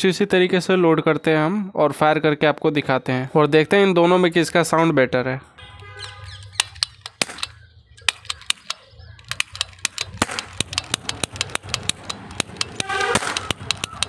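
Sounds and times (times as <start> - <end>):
cap gun clicking: 6.0 - 14.0.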